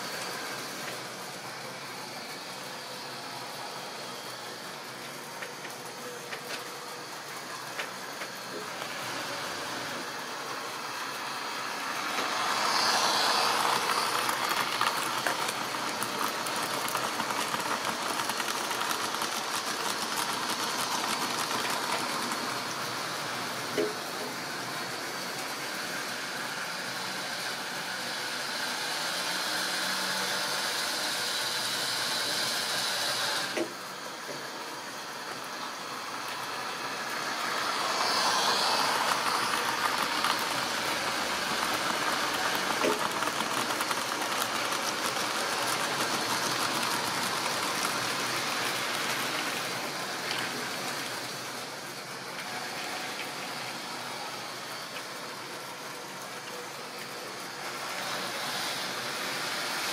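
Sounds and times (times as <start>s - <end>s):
small electric motors humming: 0.0s - 59.9s.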